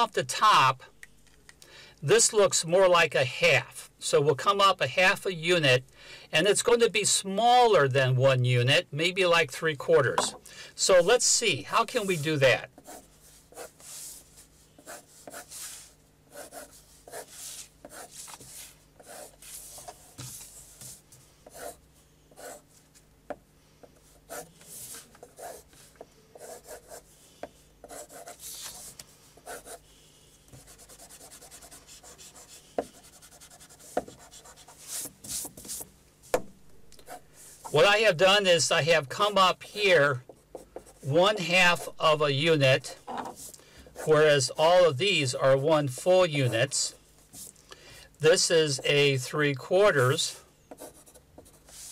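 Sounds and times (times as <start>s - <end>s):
pencil scratching on paper: 11.8s - 22.6s, 24.0s - 27.1s, 27.8s - 29.8s, 30.5s - 35.8s, 50.7s - 51.9s.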